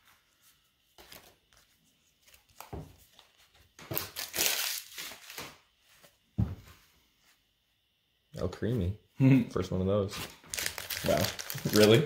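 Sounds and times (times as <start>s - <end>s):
foil wrapper crinkling and tearing: 3.9s - 5.4s, 10.3s - 12.0s.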